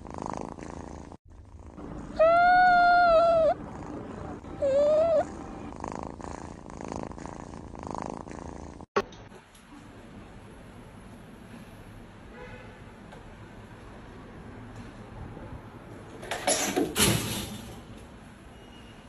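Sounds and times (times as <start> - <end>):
kitten purring: 0.0 - 8.9
kitten mewing: 2.0 - 3.6.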